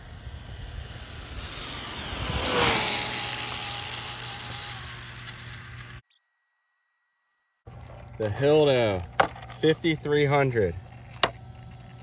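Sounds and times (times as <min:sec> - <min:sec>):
rc car motor whining past: 0:00.0 - 0:06.1.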